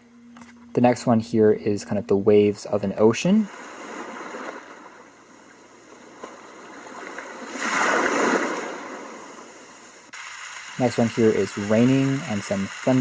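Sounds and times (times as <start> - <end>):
ocean waves from small speaker: 3.3 - 5.2, 5.8 - 10.1.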